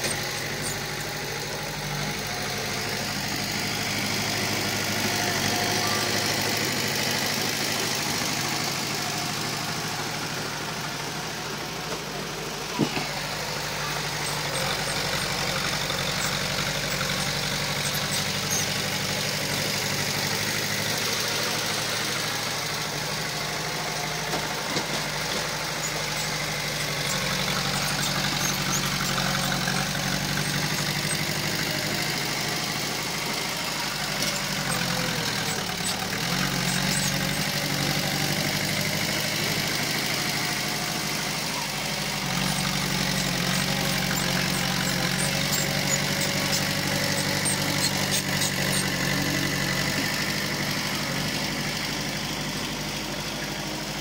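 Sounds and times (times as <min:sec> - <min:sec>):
heavy diesel engine running: 0:00.0 - 0:54.0.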